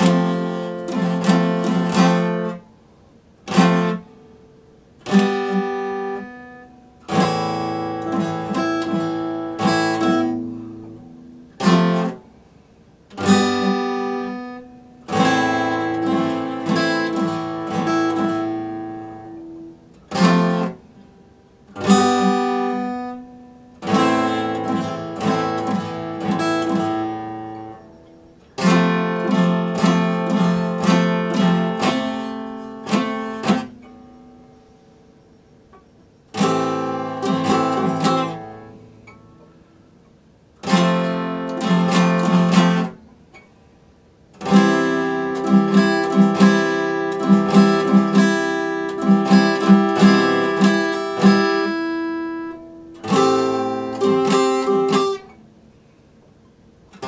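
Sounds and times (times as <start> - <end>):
acoustic guitar strummed: 0.0 - 57.0.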